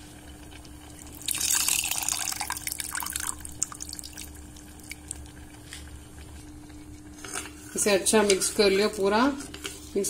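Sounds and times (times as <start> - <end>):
drips and small pops: 0.6 - 6.3
liquid pouring into pot: 0.8 - 5.6.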